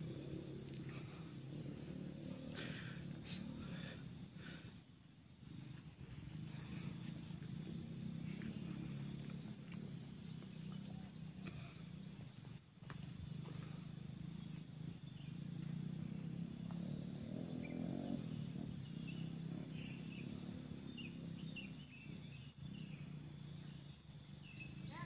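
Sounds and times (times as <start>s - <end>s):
insect calls: 0.0s - 25.0s
steady low hum: 0.0s - 25.0s.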